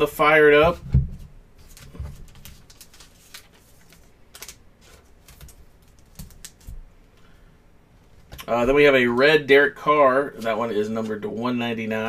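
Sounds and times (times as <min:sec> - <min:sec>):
trading cards shuffled: 0:01.6 - 0:06.8.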